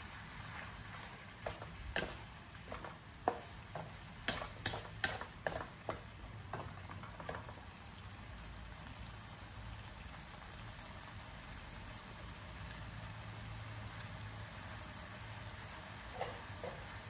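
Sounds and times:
wooden spatula knocking on metal pan: 1.0s - 7.6s.

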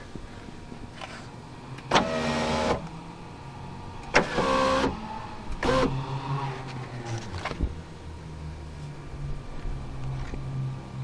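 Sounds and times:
electric window motor: 1.9s - 2.9s, 4.1s - 7.6s.

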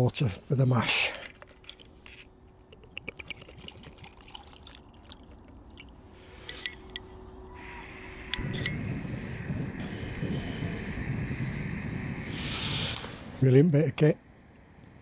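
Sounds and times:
water trickling into pot: 2.8s - 6.0s.

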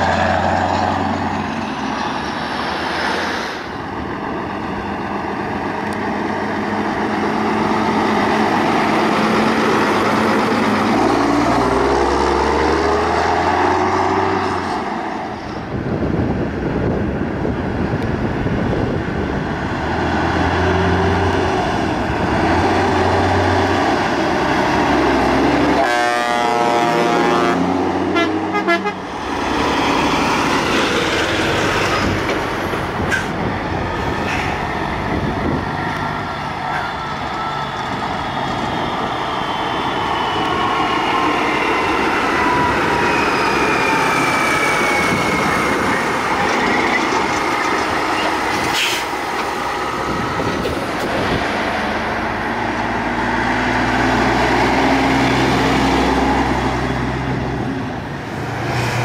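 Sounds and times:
loud diesel trucks passing: 0.0s - 59.0s
horn blasts: 25.7s - 29.1s.

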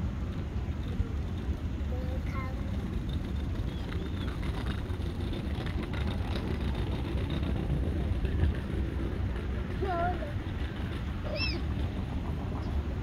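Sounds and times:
low outdoor rumble: 0.0s - 13.0s
faint high bird calls: 11.2s - 11.7s.

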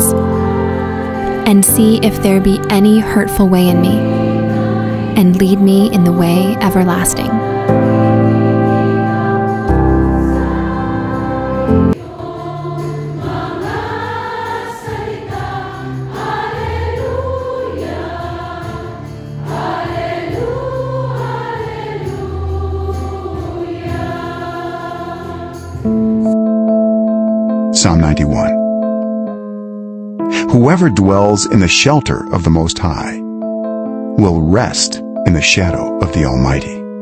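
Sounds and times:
sustained chords: 0.0s - 12.0s
choir singing: 0.0s - 26.4s.

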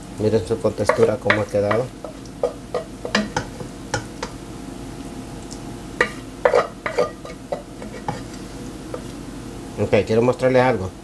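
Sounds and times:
wooden spoon knocking on pot: 0.8s - 4.4s.

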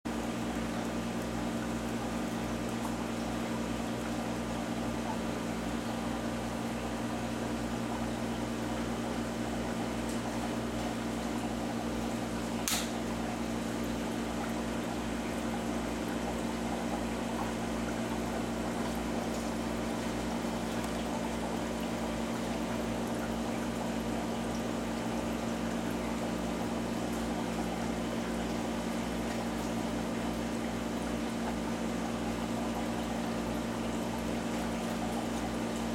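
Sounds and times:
aquarium pump hum: 0.1s - 35.9s
sharp click: 12.6s - 13.0s.

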